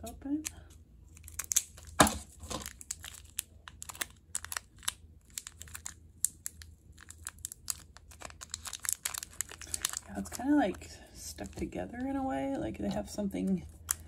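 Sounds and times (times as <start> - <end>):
plastic sachet crinkling: 1.1 - 12.6.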